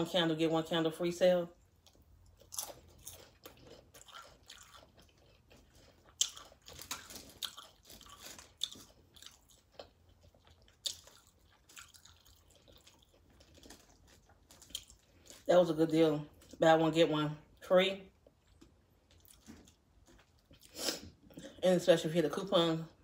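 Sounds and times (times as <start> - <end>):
tortilla chips crunching: 1.8 - 15.7, 18.2 - 20.8.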